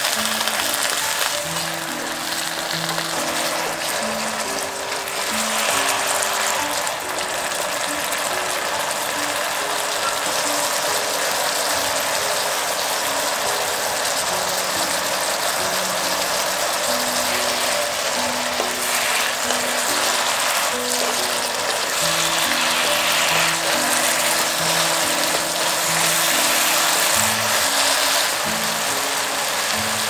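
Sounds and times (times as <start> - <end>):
food sizzling in a frying pan: 0.0 - 30.0
soft background music: 0.0 - 30.0
wooden spatula scraping a pan: 0.4 - 8.7, 17.0 - 29.7.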